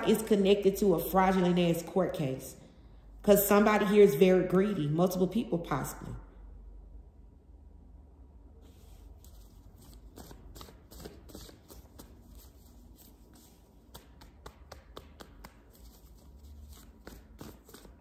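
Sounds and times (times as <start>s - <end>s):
low steady hum: 0.0s - 18.0s
cards shuffled by hand: 8.8s - 18.0s.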